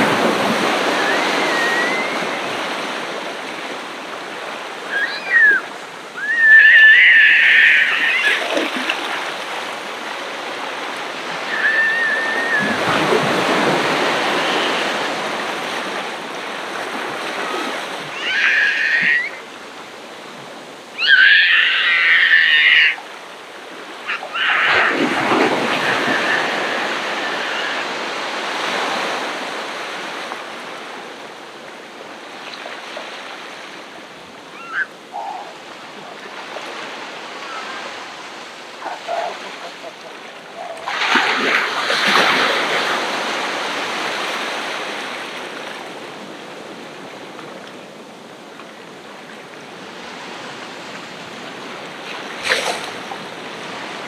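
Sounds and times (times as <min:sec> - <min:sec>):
ocean waves breaking: 0:00.0 - 0:54.0
loud high-pitched calls: 0:00.8 - 0:02.6, 0:04.8 - 0:08.4, 0:11.4 - 0:12.9, 0:18.1 - 0:19.5, 0:21.0 - 0:23.0, 0:24.1 - 0:25.0, 0:34.5 - 0:35.5.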